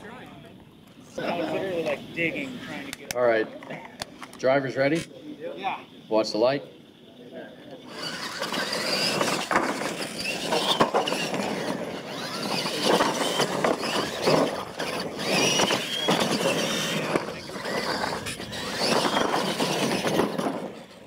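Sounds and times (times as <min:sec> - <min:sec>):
tyres churning dirt: 0:00.0 - 0:21.0
electric motor whine: 0:07.8 - 0:21.0.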